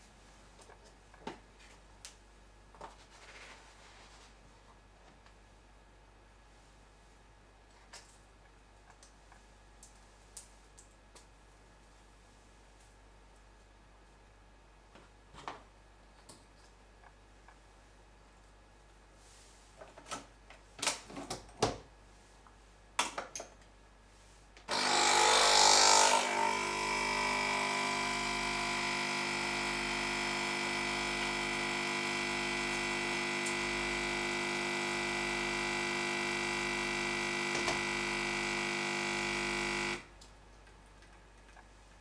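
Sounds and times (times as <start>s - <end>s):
coffee machine pump humming: 24.7s - 40.1s.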